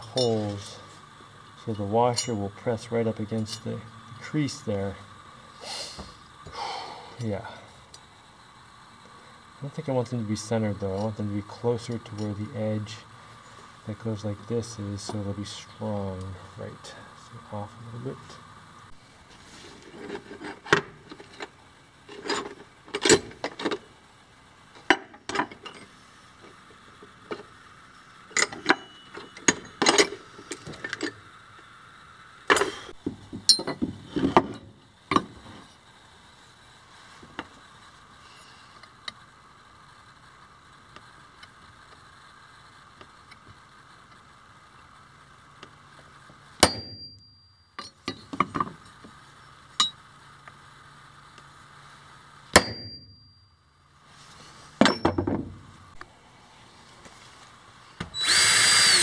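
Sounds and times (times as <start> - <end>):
metal clinks and knocks: 33.3 - 35.3, 54.8 - 55.6
hammer striking metal punch: 46.6 - 47.2, 52.6 - 53.1, 54.8 - 55.4.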